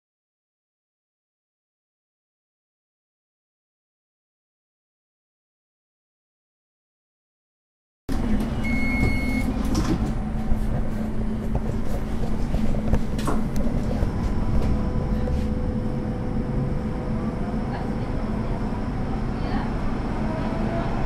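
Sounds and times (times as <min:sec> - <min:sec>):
light-rail car rumbling: 0:08.1 - 0:21.0
short high beep: 0:08.6 - 0:09.5.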